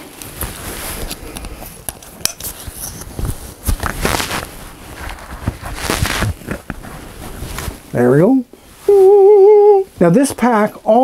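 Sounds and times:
nylon straps rustling and scraping: 0:00.0 - 0:08.2.

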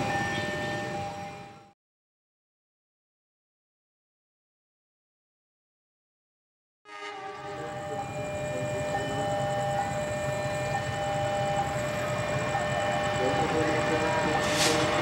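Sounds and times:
steady high tones: 0:00.0 - 0:01.7, 0:07.4 - 0:15.0
locomotive engine rumble: 0:07.5 - 0:15.0.

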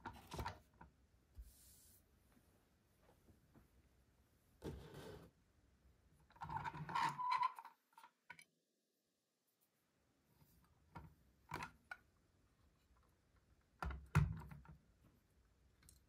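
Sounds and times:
model car scraping on table: 0:04.6 - 0:05.3.

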